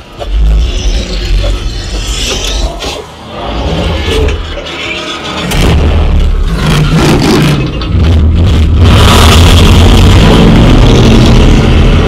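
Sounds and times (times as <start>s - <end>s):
deep bass rumble: 5.4s - 12.0s.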